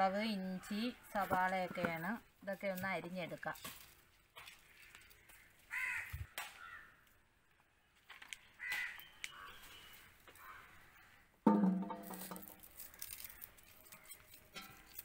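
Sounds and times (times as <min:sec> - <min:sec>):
crow cawing: 0:04.4 - 0:07.0, 0:08.6 - 0:11.4.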